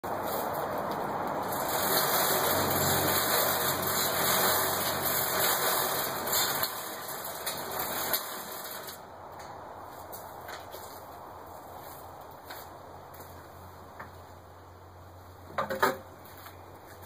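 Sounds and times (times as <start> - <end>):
trommel drum rattling and humming: 1.5 - 8.9.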